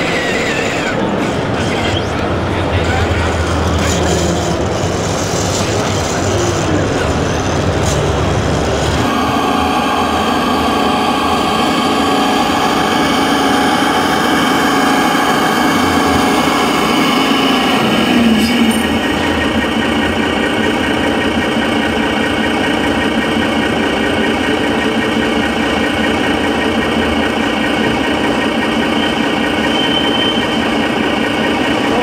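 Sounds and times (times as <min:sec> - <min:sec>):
faint voices: 0:00.0 - 0:20.5
model tractor engine rumble: 0:00.0 - 0:32.0
model truck engine hum: 0:00.0 - 0:32.0.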